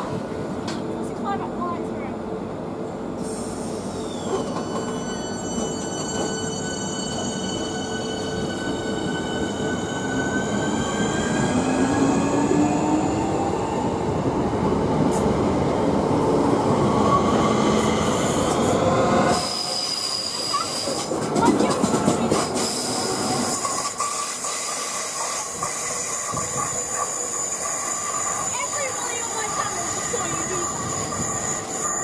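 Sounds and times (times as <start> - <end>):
train wheels rumbling on rails: 3.0 - 32.0
train traction motors whining: 18.0 - 32.0.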